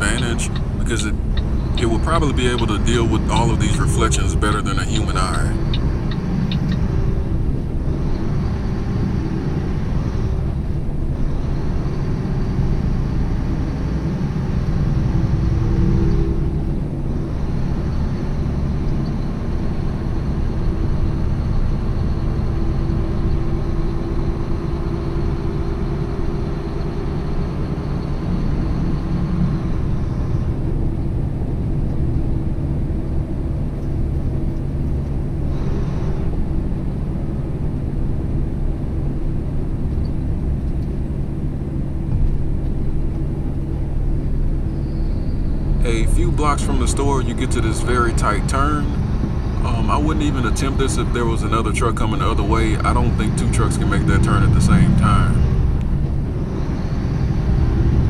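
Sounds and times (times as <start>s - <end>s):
faint high whine: 0.0s - 57.4s
truck diesel engine drone: 0.0s - 58.0s.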